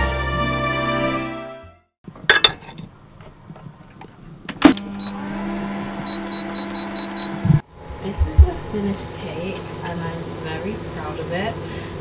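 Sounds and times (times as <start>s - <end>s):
bowl clinking on turntable: 2.3s - 2.8s
microwave hum: 4.3s - 12.0s
keypad beeps: 6.1s - 7.4s.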